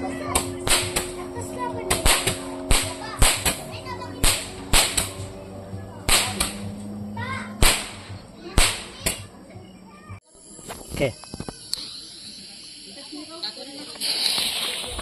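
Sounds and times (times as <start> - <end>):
fireworks popping: 0.2 - 1.3, 1.9 - 5.2, 6.1 - 6.7, 7.6 - 9.3, 10.6 - 15.0.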